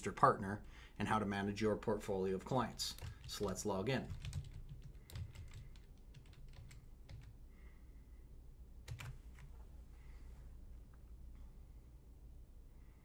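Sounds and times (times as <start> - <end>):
keystrokes on computer keyboard: 2.9 - 7.4, 8.8 - 9.5.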